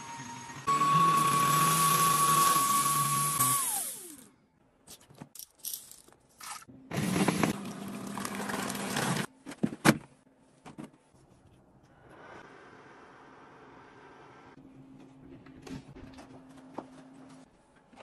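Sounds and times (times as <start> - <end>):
appliance motor winding down: 0.0 - 4.3.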